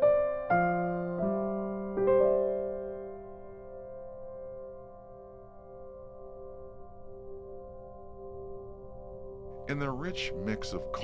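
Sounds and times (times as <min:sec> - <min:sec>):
held music chord: 0:09.5 - 0:11.0.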